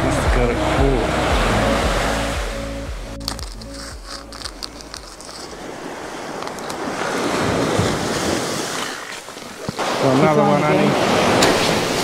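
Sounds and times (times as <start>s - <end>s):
surf washing up beach: 0.0s - 3.0s, 5.4s - 12.0s
plastic packet crinkling: 3.2s - 5.6s.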